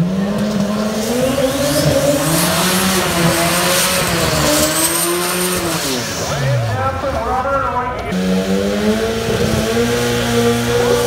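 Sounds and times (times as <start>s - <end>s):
tyres spinning on pavement: 0.0s - 8.1s
car engine revving high: 0.0s - 11.0s.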